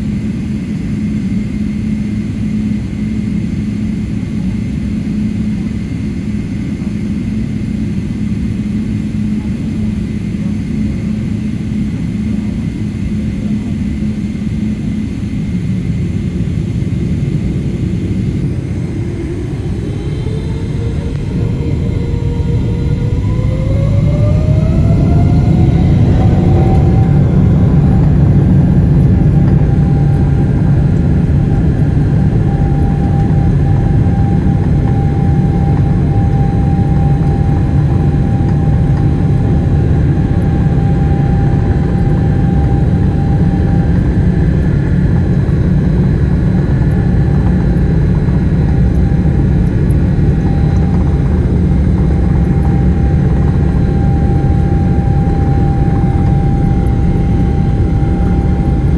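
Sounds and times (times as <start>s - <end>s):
deep constant rumble: 0.0s - 58.9s
jet engine whine: 0.0s - 58.9s.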